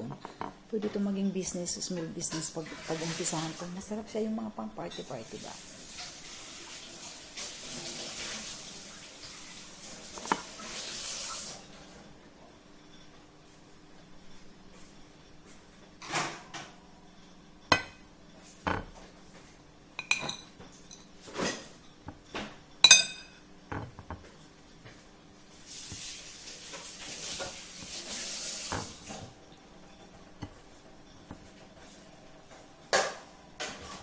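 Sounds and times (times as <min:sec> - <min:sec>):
dishes clinking: 0:00.0 - 0:01.0, 0:10.2 - 0:10.6, 0:17.6 - 0:19.1, 0:20.0 - 0:24.3, 0:28.7 - 0:31.9.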